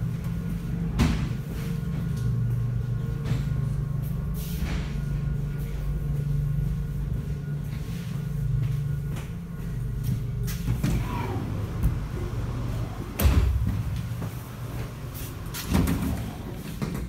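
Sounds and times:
train low rumble: 0.0s - 17.0s.

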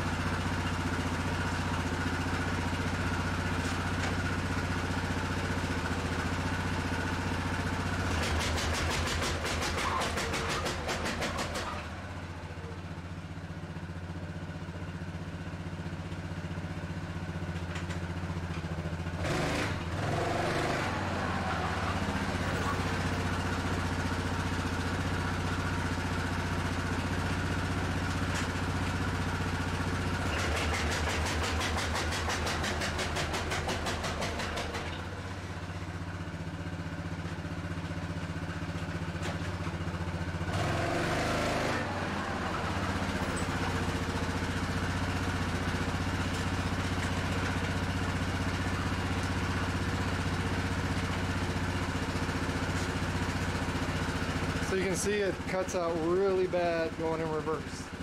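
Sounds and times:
engine running: 0.0s - 58.0s
engine stuttering rapidly: 8.0s - 11.9s, 19.2s - 23.4s, 30.2s - 35.0s, 54.5s - 58.0s.

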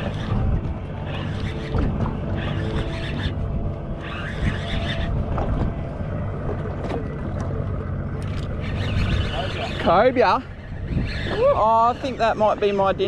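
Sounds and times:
fishing reel cranking: 0.0s - 3.4s, 4.0s - 5.2s, 8.2s - 13.0s
boat rumble: 0.0s - 13.0s
wind buffeting microphone: 0.0s - 13.0s.

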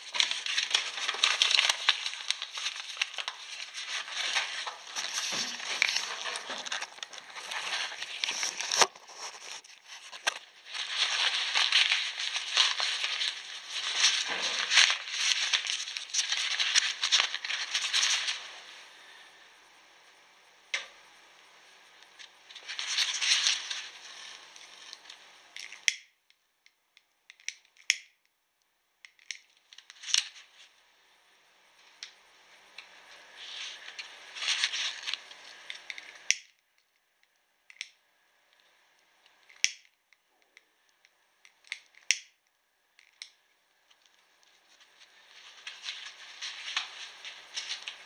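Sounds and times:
electric arc sizzling and crackling: 0.0s - 8.9s, 9.6s - 18.5s.

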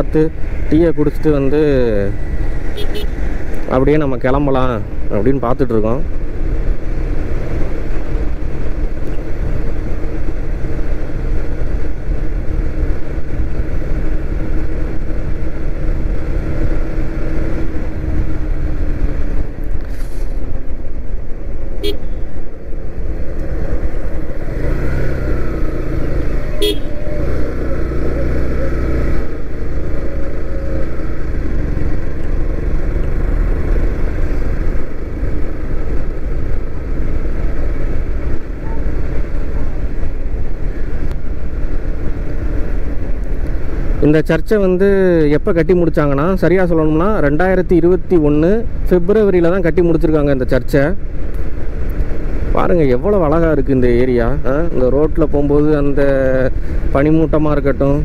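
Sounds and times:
motorcycle engine cruising: 0.0s - 58.0s
short horn beeps: 21.8s - 22.2s, 26.5s - 27.2s.

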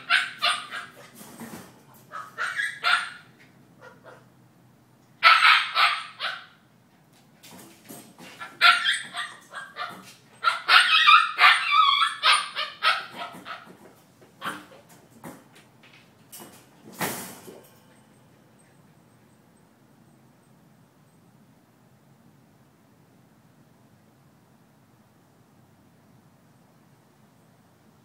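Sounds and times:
young dog barking and yelping: 0.0s - 1.2s, 2.0s - 4.4s, 5.2s - 6.6s, 8.2s - 13.8s, 14.4s - 14.9s.

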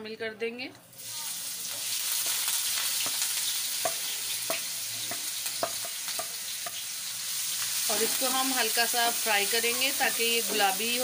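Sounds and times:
onions sizzling in hot oil: 0.9s - 11.0s.

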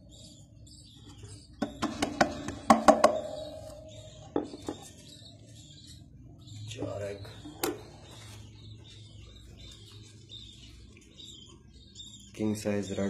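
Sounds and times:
budgerigars chirping: 0.0s - 13.0s
knocks on wooden nest box: 1.6s - 3.7s.

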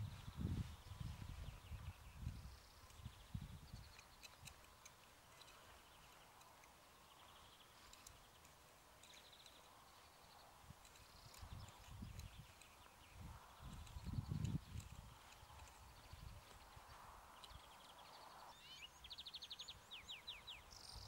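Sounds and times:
small birds trilling: 0.1s - 21.0s
light ticks: 2.2s - 18.2s.

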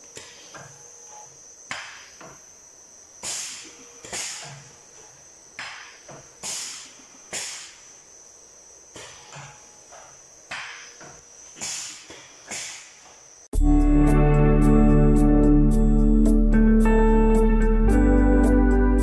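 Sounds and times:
high-pitched machine whine: 0.0s - 19.0s
air hissing bursts: 3.2s - 4.8s, 6.4s - 8.0s, 10.8s - 13.2s.

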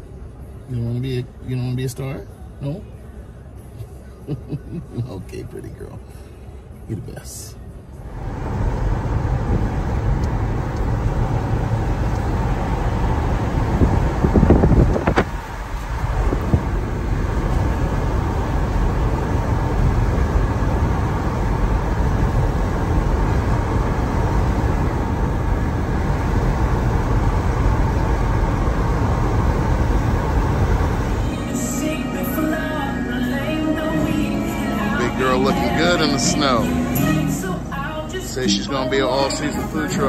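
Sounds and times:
wind and road noise through car window: 0.0s - 32.0s.

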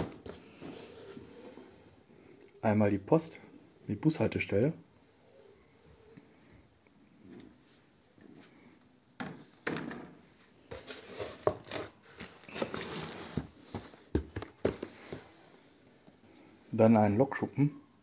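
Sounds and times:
cardboard rustling and scraping: 0.0s - 1.9s, 10.6s - 16.5s.

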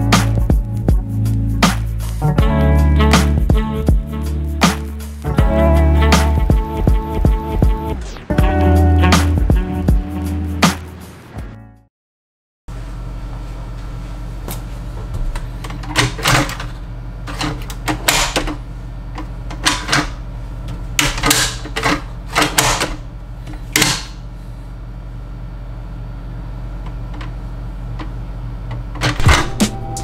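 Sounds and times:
steady low hum: 12.7s - 30.0s.

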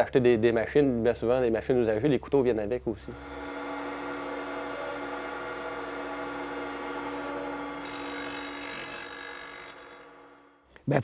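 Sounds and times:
bench grinder whine: 3.0s - 10.6s
high grinding hiss: 3.0s - 10.6s.

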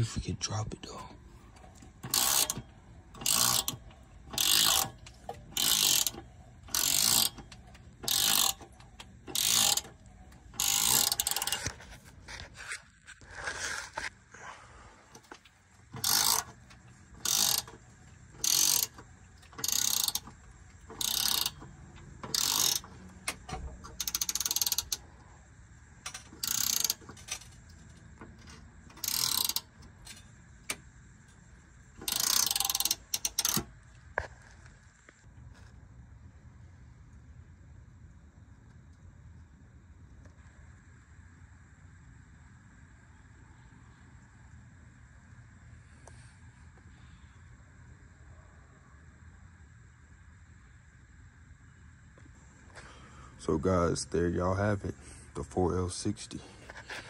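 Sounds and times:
hand ratchet clicking: 1.6s - 11.8s, 15.1s - 25.0s, 26.0s - 30.8s, 32.0s - 33.7s.

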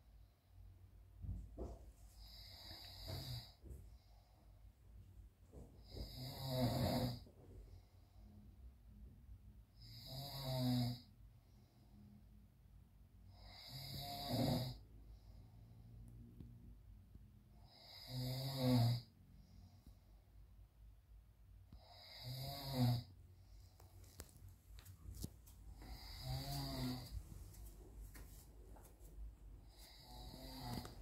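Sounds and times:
man snoring: 2.2s - 3.6s, 5.8s - 7.3s, 9.8s - 11.1s, 13.3s - 14.8s, 17.6s - 19.1s, 21.7s - 23.2s, 25.7s - 27.2s, 29.6s - 31.0s.

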